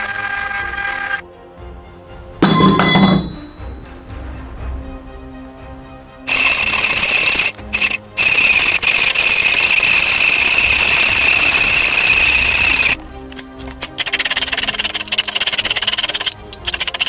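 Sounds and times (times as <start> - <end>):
angle grinder cutting steel pipe: 0.0 - 1.2, 6.3 - 13.0, 13.7 - 17.0.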